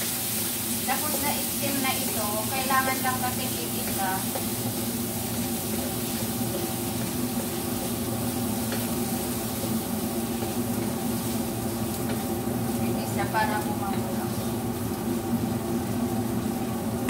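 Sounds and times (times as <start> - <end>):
squid sizzling in a wok: 0.0 - 17.0
wooden spatula stirring: 2.0 - 12.3.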